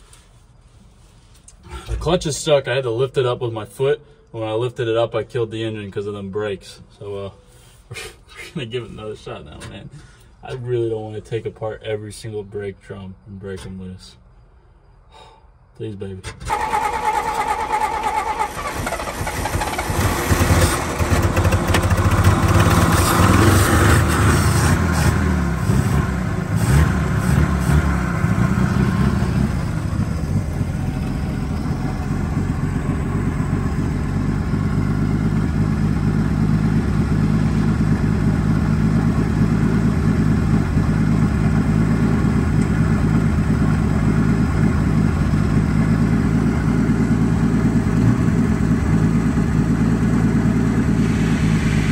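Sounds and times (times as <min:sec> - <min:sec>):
truck engine revving and idling: 0:16.4 - 0:51.9.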